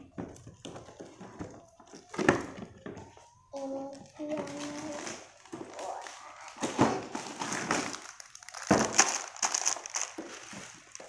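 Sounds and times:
plastic and cardboard rustling: 0.0s - 11.0s.

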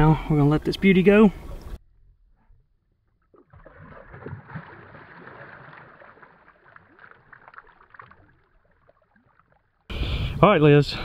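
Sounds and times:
water splashing beside a boat: 2.9s - 9.9s.

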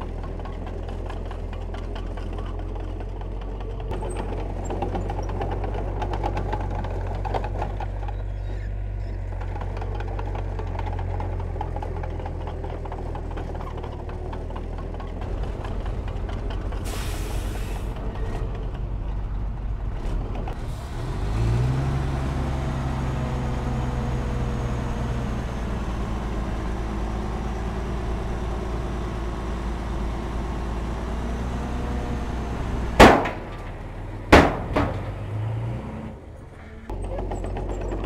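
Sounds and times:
diesel engine revving: 0.0s - 38.0s
sharp loud bangs: 33.0s - 35.3s.

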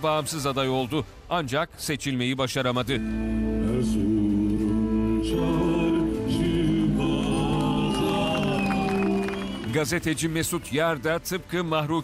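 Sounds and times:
amplified music: 3.0s - 10.0s
man singing into microphone: 3.5s - 9.0s.

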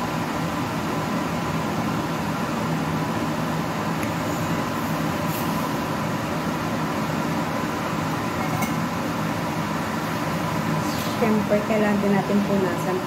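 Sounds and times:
fan humming: 0.0s - 13.0s.

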